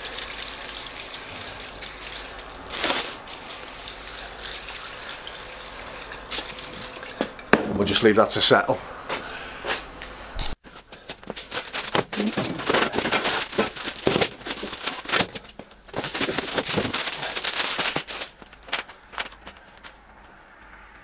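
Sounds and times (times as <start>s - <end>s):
plastic wrapping crinkling: 1.5s - 4.6s, 11.3s - 19.7s.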